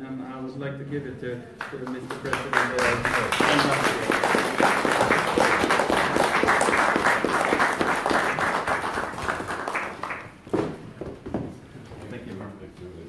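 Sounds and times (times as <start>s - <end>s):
audience applause: 1.6s - 10.4s.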